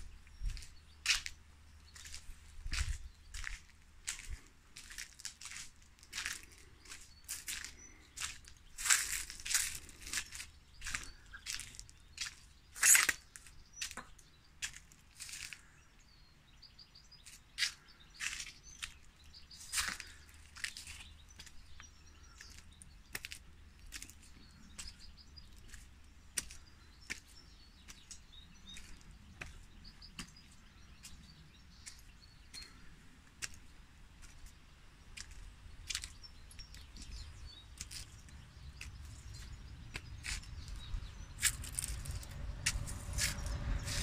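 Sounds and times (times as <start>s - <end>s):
footsteps crunching on stone: 0.3s - 15.7s, 19.6s - 21.6s, 35.2s - 44.0s
low rumble: 40.6s - 44.0s.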